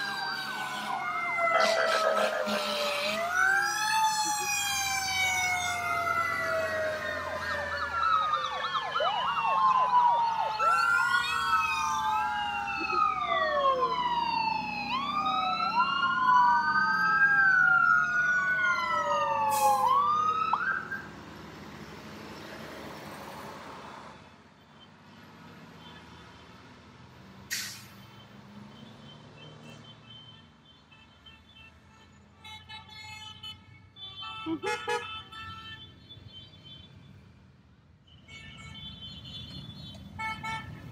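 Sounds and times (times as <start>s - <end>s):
emergency sirens wailing and yelping: 0.0s - 23.9s
steady vehicle noise: 0.0s - 40.9s.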